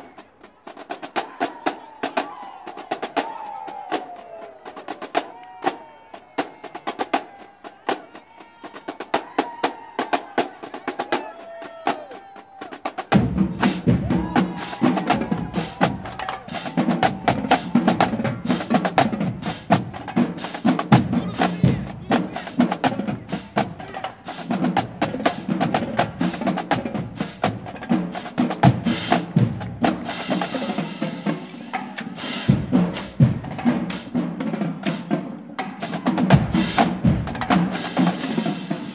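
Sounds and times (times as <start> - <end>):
drumline playing cadence: 0.0 - 38.9
bass drums: 13.0 - 30.8, 35.9 - 38.1.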